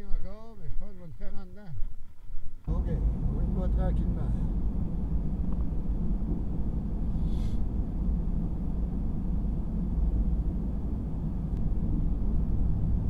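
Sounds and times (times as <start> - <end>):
truck engine and tyres rumbling: 2.7 - 13.0
brief hiss: 7.1 - 7.6.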